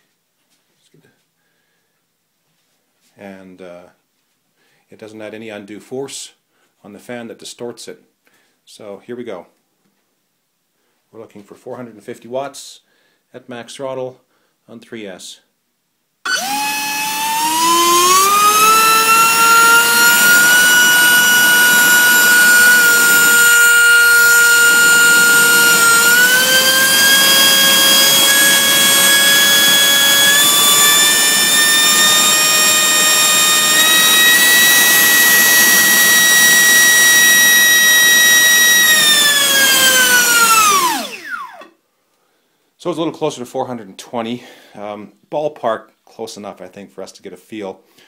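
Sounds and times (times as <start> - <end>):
electric ducted fan whine: 16.3 - 41.6.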